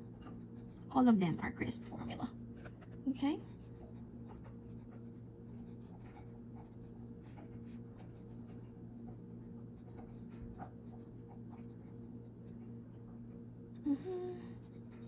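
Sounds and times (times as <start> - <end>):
steady low hum: 0.0 - 15.0
pen nib scratching on paper: 2.6 - 12.7, 14.6 - 15.0.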